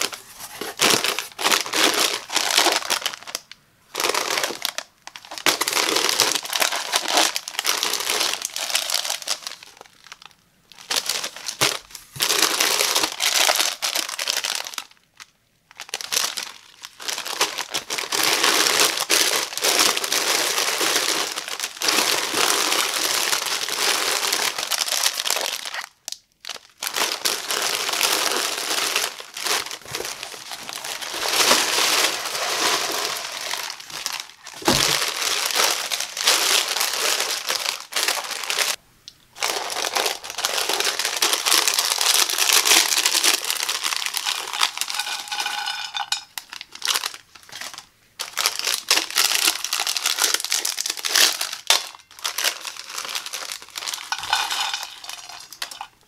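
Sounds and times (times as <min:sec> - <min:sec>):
snack bags crinkling: 0:00.0 - 0:56.0.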